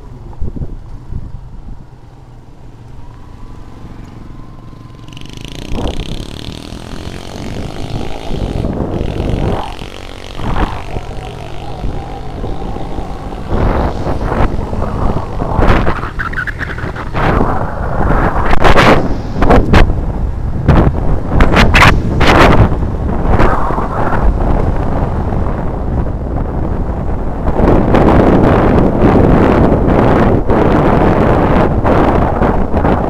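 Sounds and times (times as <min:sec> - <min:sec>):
wind noise on microphone: 0:00.0 - 0:33.0
motorcycle engine running: 0:02.5 - 0:17.3.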